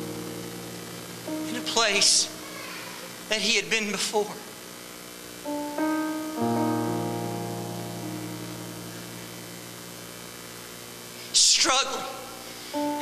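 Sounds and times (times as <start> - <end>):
soft piano chords: 0.0 - 3.5, 5.4 - 11.0, 12.7 - 13.0.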